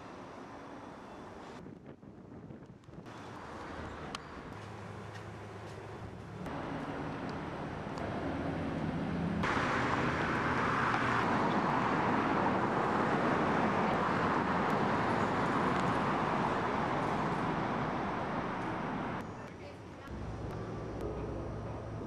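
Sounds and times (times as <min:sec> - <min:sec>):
low traffic hum: 0:00.0 - 0:22.0
passing cars rushing: 0:06.4 - 0:19.2.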